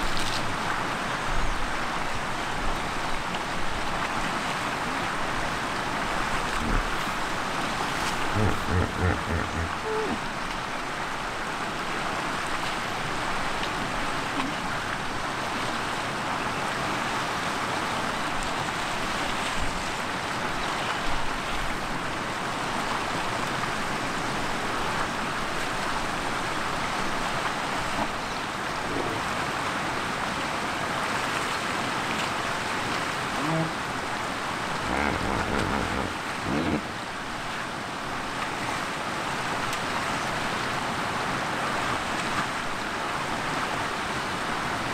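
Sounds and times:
river water rushing: 0:00.0 - 0:44.9
short low-pitched sounds: 0:08.3 - 0:10.2, 0:34.8 - 0:36.8.

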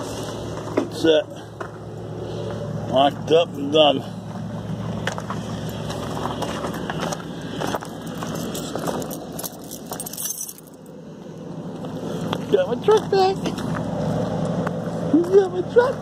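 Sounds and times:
vehicle engine idling: 0:00.0 - 0:16.0
footsteps on snowy gravel: 0:05.2 - 0:10.6
keys jangling: 0:08.0 - 0:10.9.

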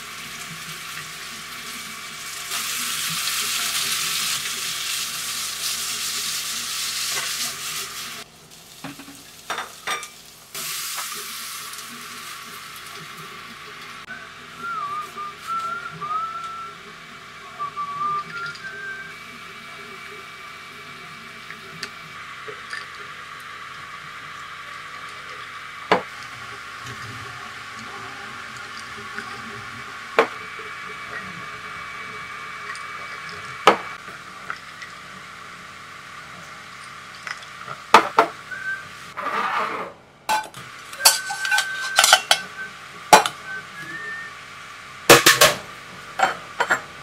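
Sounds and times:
whistled note: 0:14.1 - 0:16.8, 0:17.4 - 0:19.2, 0:38.5 - 0:38.9, 0:41.0 - 0:44.4
metal bowl clinking on counter: 0:40.3 - 0:42.5
metal bowl ringing: 0:40.3 - 0:42.5.

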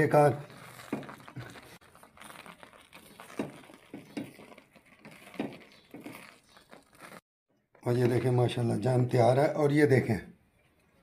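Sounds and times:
spoon stirring sticky jam: 0:00.0 - 0:07.2.

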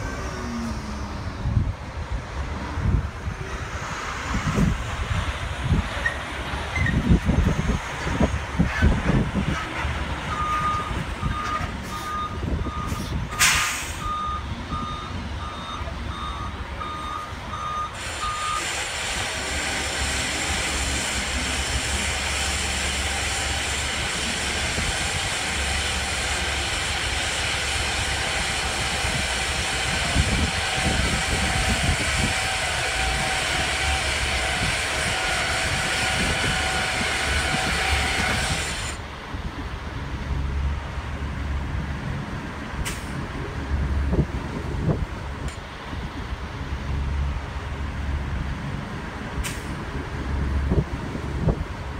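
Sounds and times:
diesel truck engine revving: 0:00.0 - 0:51.9
air brake hiss: 0:12.9 - 0:14.1.

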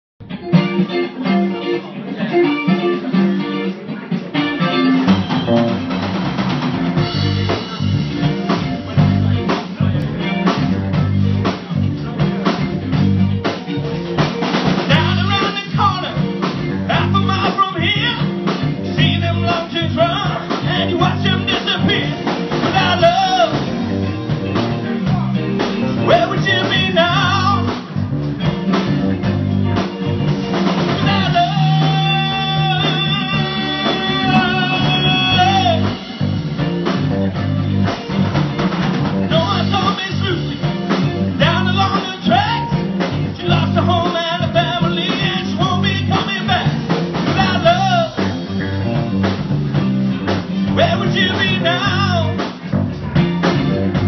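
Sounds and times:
drum kit beat: 0:00.2 - 0:54.0
electric guitars: 0:00.2 - 0:54.0
man singing: 0:14.8 - 0:24.2, 0:24.8 - 0:28.0, 0:30.8 - 0:36.1, 0:39.3 - 0:48.7, 0:50.7 - 0:52.5.

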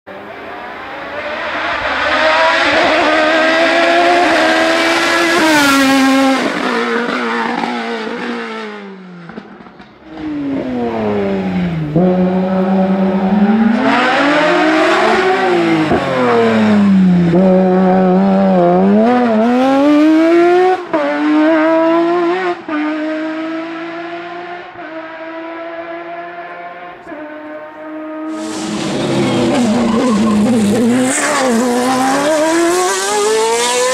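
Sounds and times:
race car engine revving: 0:00.1 - 0:33.9.

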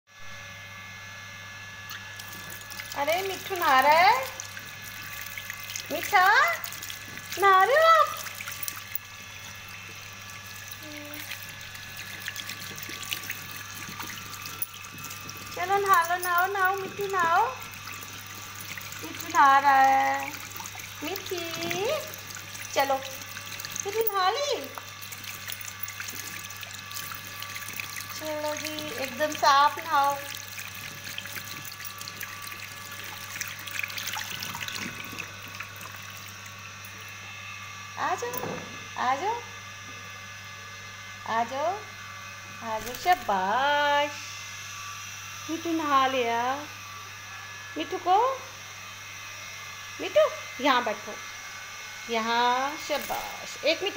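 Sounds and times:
tap water trickling into basin: 0:01.9 - 0:37.2.

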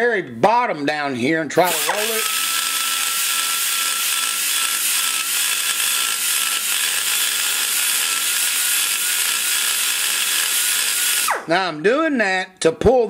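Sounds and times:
die grinder cutting metal: 0:01.6 - 0:11.5.

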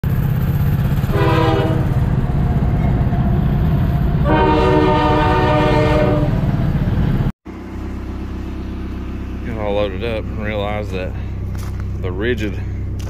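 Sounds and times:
go-kart engine running: 0:00.0 - 0:04.2
vehicle horn blasts: 0:01.1 - 0:02.0, 0:04.2 - 0:06.4.

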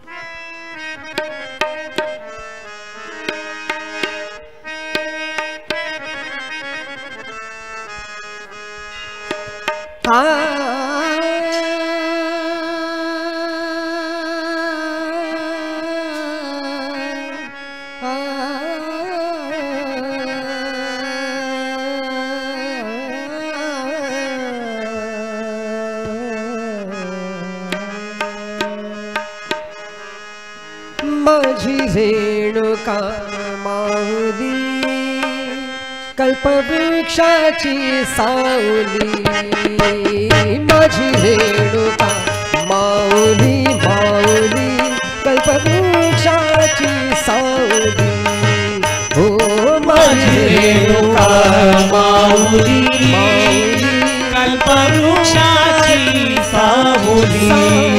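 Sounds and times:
harmonium: 0:00.0 - 0:57.9
tabla drumming: 0:01.1 - 0:02.5, 0:03.1 - 0:06.2, 0:09.2 - 0:10.6, 0:27.7 - 0:29.9, 0:31.0 - 0:32.0, 0:38.9 - 0:57.9
man singing: 0:10.0 - 0:29.6, 0:31.0 - 0:57.9.

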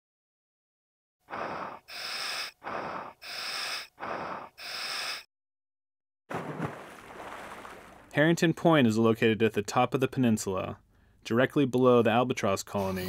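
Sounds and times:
scuba regulator breathing: 0:01.2 - 0:05.3.

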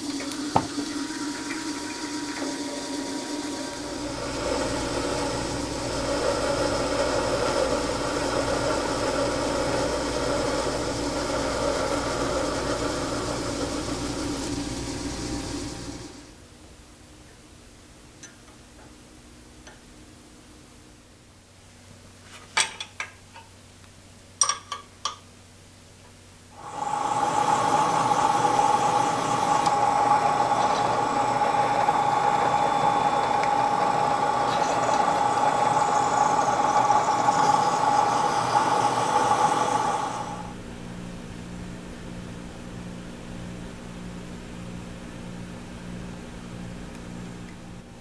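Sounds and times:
drill press whining: 0:00.0 - 0:16.3, 0:26.6 - 0:40.6.

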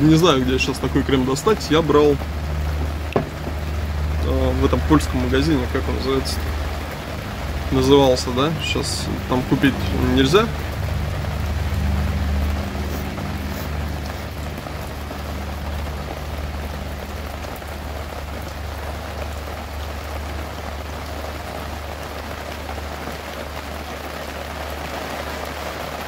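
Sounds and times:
steady rushing noise: 0:00.0 - 0:19.7
low hum: 0:00.0 - 0:20.6.

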